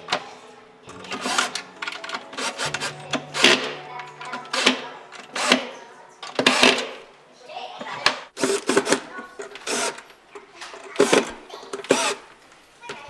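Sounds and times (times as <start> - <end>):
cordless drill driving screws: 2.3 - 3.7, 4.5 - 5.7, 6.4 - 6.9, 8.4 - 10.0, 11.0 - 12.3.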